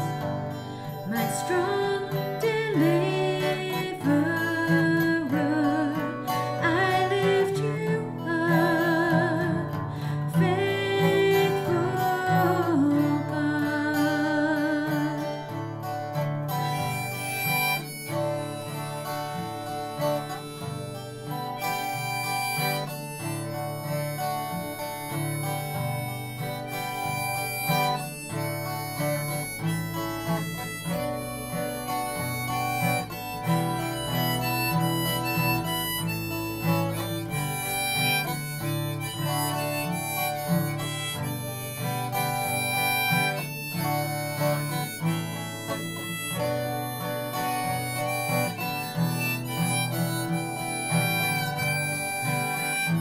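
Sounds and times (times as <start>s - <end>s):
acoustic guitar accompaniment: 0.0s - 53.0s
harmonica melody: 0.0s - 53.0s.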